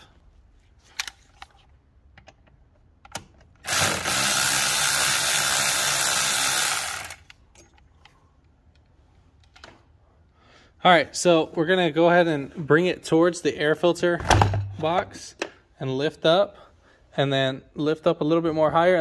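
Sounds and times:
cordless power driver spinning: 3.6s - 7.4s.

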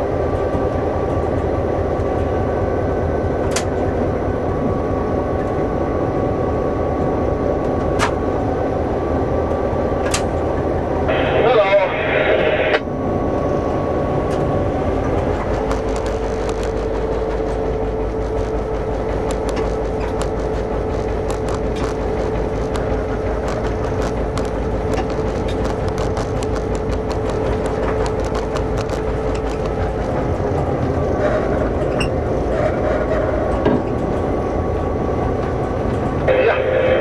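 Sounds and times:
diesel locomotive engine running: 0.0s - 37.0s
steady whine: 0.0s - 37.0s
sharp clicks: 15.4s - 30.2s.

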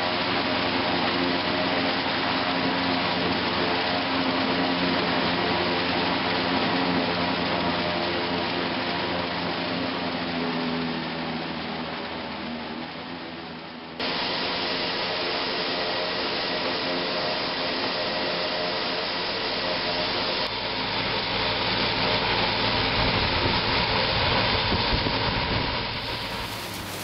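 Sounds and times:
forage harvester cutting corn: 26.0s - 27.0s
tractor engine rumble: 26.0s - 27.0s.

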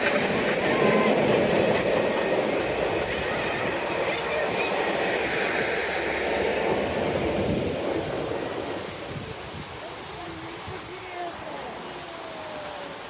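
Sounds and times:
train wheels rumbling on rails: 0.0s - 9.7s
diesel locomotive engine: 0.0s - 10.2s.

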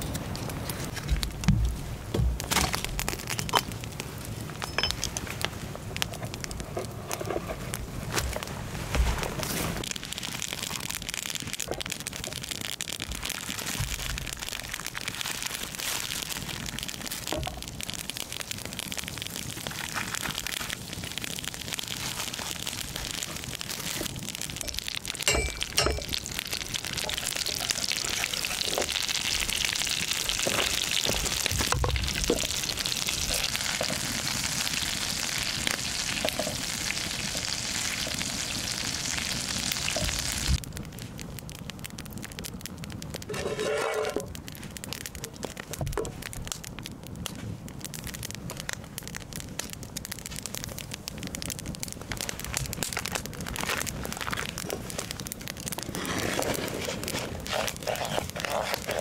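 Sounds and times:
campfire clicks and crackles: 0.0s - 59.0s
butter sizzling in frying pan: 9.9s - 40.6s, 50.2s - 59.0s.

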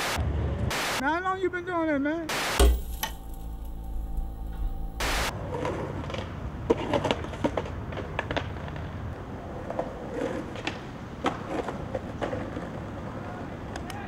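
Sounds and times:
skateboard wheels rumbling on concrete: 5.5s - 13.7s
skateboard clacking on concrete: 9.6s - 12.8s.

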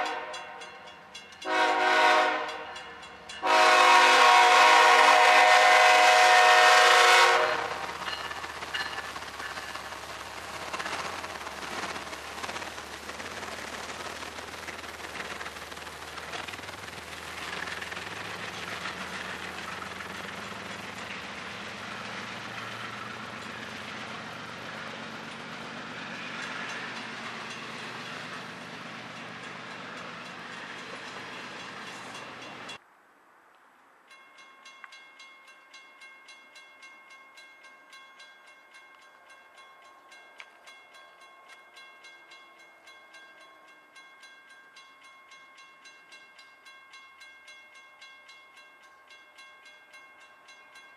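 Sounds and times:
railroad crossing bell ringing: 0.0s - 4.7s, 5.4s - 10.0s, 17.3s - 32.8s, 34.1s - 50.9s
train wheels on rail: 0.0s - 32.8s.

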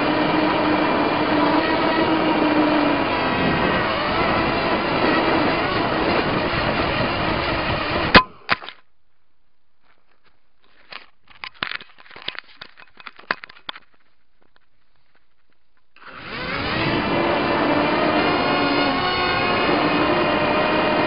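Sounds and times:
drone motors buzzing: 0.0s - 8.2s, 16.0s - 21.0s.

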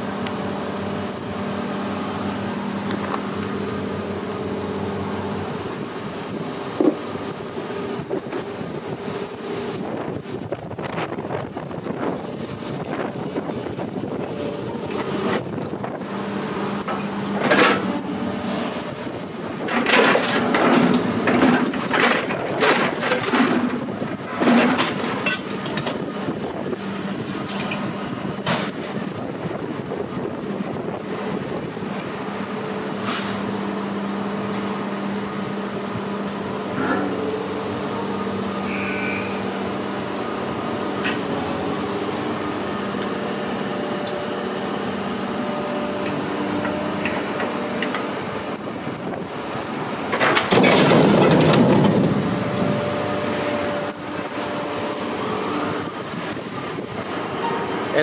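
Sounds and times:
engine humming: 0.0s - 58.0s
loud clattering and banging: 19.6s - 26.1s, 50.0s - 52.8s.

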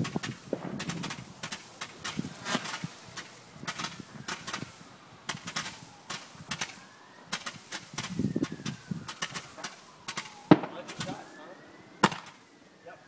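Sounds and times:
firework pops and crackles: 0.0s - 11.4s, 12.0s - 12.5s
spark fountain hissing: 0.0s - 11.5s
firework whistle falling in pitch: 5.4s - 13.0s.

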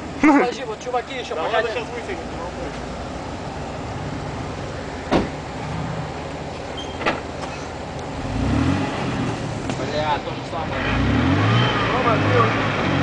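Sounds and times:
car engine running: 0.0s - 13.0s
sharp knocks: 5.1s - 5.4s.

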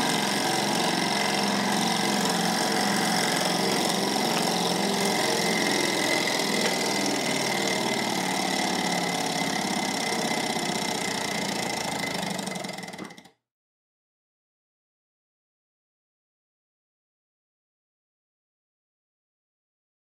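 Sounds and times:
small engine clattering: 0.0s - 13.4s.

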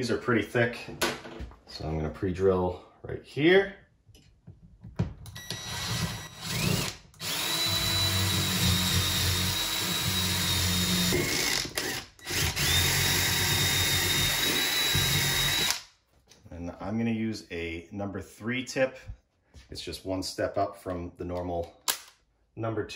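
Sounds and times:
cordless drill whining: 5.3s - 15.8s.

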